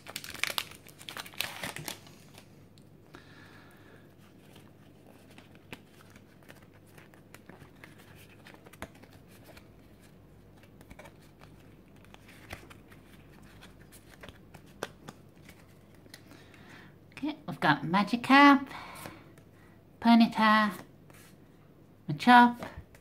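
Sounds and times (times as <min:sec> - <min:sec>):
cards rustling: 0:00.0 - 0:02.6, 0:04.1 - 0:16.7.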